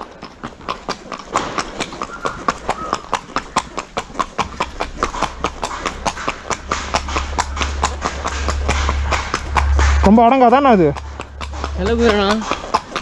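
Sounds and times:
horse hooves clip-clopping on pavement: 0.0s - 13.0s
low rumble: 4.2s - 13.0s.

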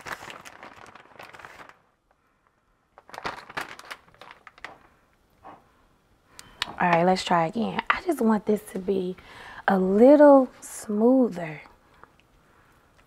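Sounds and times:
plastic bag crinkling: 0.0s - 2.2s, 2.9s - 5.1s.

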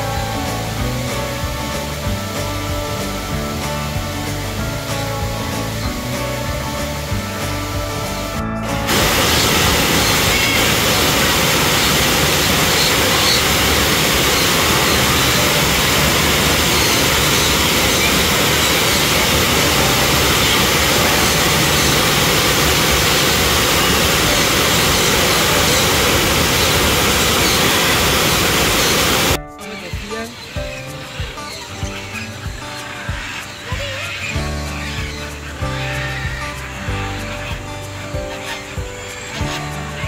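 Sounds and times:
loud steady rushing noise: 0.0s - 29.4s.

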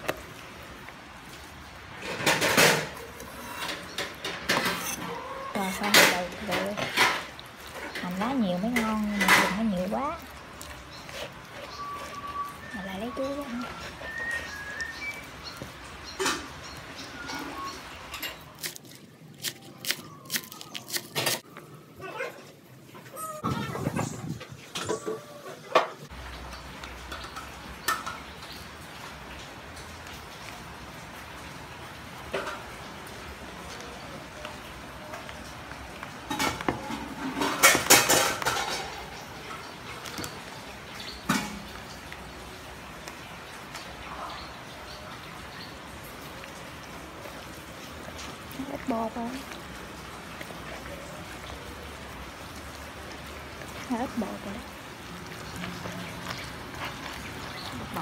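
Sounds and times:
utensils and dishes clattering: 1.9s - 14.9s, 17.2s - 21.4s, 24.0s - 28.5s, 36.2s - 40.4s.

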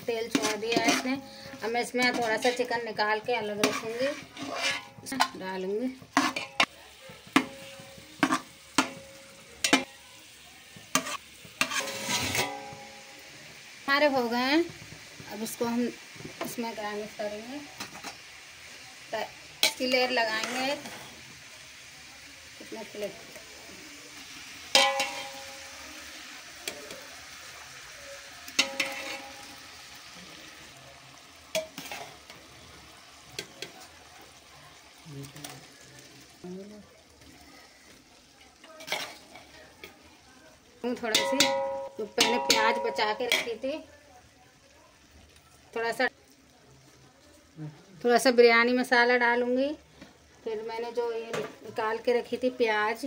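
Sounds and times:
pot sizzling: 0.0s - 53.0s
spoon scraping pot: 0.2s - 5.4s, 6.1s - 6.7s, 10.9s - 12.8s, 28.6s - 29.6s, 31.6s - 32.3s
steel spoon clinking on pot: 0.3s - 2.6s, 7.4s - 10.0s, 11.0s - 13.1s, 24.7s - 25.8s, 28.6s - 29.6s, 41.0s - 43.6s
metal spoon knocking on pot: 24.7s - 25.7s, 41.0s - 43.6s.

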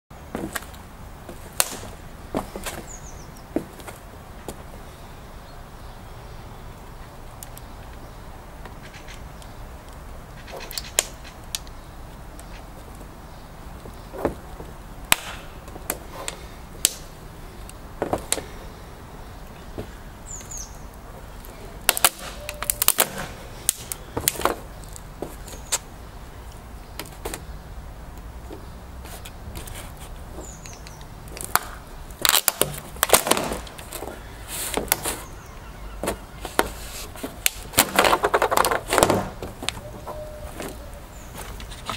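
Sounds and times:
boot heels clicking and cracking: 0.3s - 4.6s, 17.7s - 18.7s, 19.6s - 25.9s, 28.2s - 39.8s
pieces crackling and scraping on wood: 28.5s - 35.3s, 36.0s - 41.9s.

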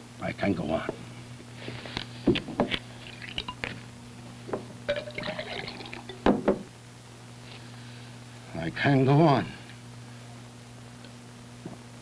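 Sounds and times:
liquid poured into a glass: 3.0s - 3.7s, 4.9s - 6.2s
glass knocking on a desk: 6.2s - 6.7s.

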